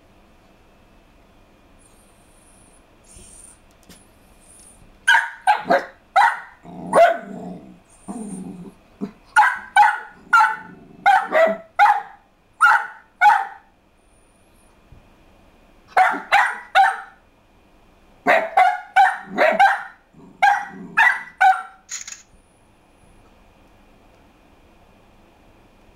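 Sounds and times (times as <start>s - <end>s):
dog barking: 5.1s - 7.3s, 9.3s - 13.7s, 15.9s - 17.2s, 18.3s - 21.8s.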